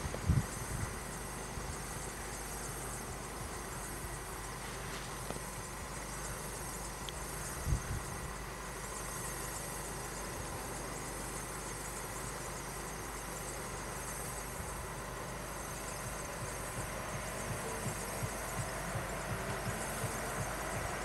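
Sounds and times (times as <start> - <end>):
faint steady tone: 0.0 - 21.0
car engines idling: 14.7 - 21.0.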